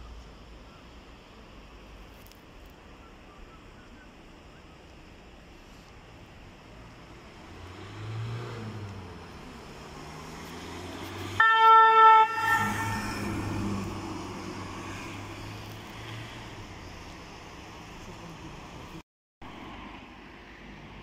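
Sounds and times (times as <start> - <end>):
vehicle engine passing: 7.0 - 19.0
vehicle horn blast: 11.4 - 13.4.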